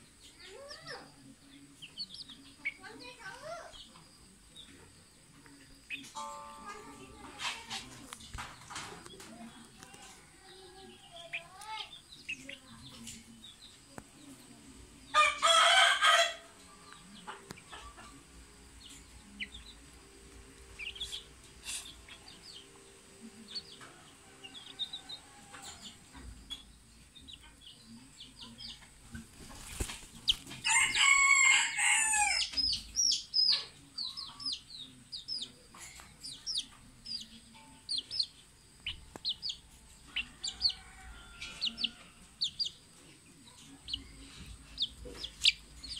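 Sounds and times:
chickens peeping: 0.0 - 45.9
rooster crowing: 15.2 - 16.5, 30.6 - 32.5, 40.2 - 42.2.

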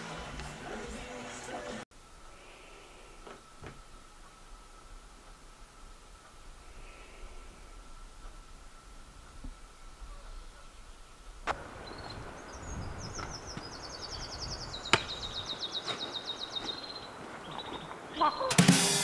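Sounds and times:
songbird trilling: 11.8 - 18.6.

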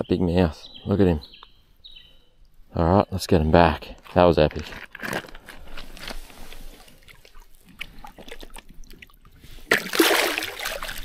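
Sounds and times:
rustling on pebbly riverbank: 3.7 - 11.0
water dripping: 7.0 - 11.0.

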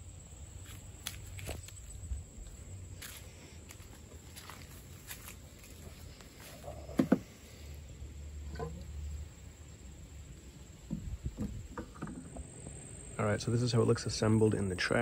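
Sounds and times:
low rumble of handling: 3.6 - 15.0
pipe knocking against plastic: 7.0 - 7.2, 10.9 - 12.2.

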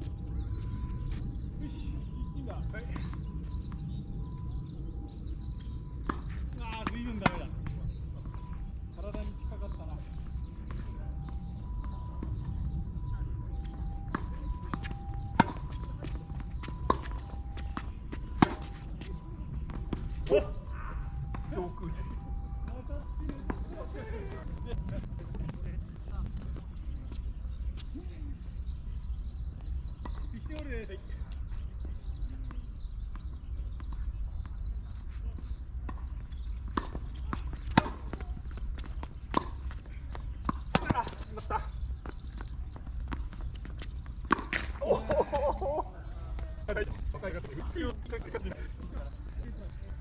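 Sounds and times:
tennis balls struck and bouncing: 5.6 - 27.2, 35.2 - 45.7
low rumble: 10.1 - 29.2.

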